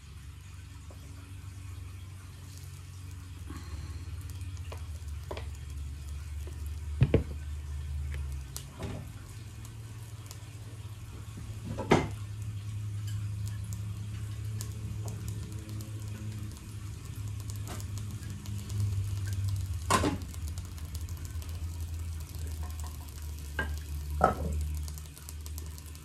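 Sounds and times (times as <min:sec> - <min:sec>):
batter sizzling in a frying pan: 0:00.0 - 0:26.0
steady low hum: 0:00.0 - 0:26.0.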